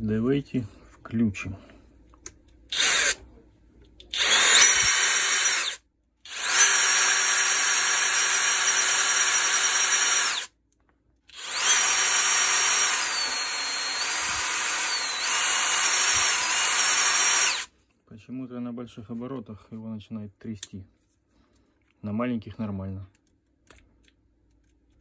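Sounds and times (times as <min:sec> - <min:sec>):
electric motor whining: 0:04.2 - 0:10.5, 0:11.4 - 0:17.7.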